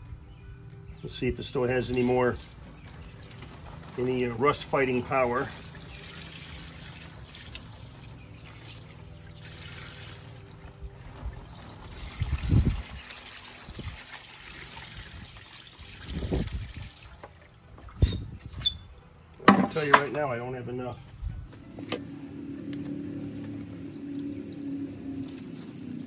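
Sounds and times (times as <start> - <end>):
liquid trickling into box: 2.0 - 18.4, 23.0 - 26.0.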